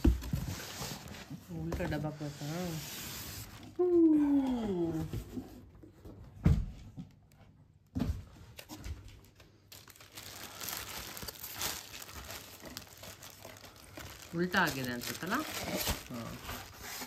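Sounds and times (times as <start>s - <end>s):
wrapping crinkling and tearing: 8.6s - 17.0s.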